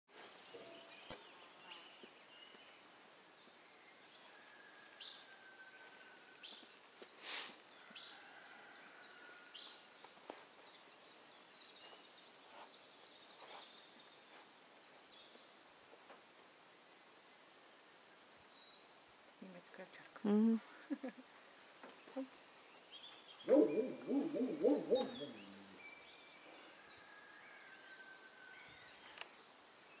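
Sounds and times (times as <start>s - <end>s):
low warbling hoots: 23.5s - 25.7s.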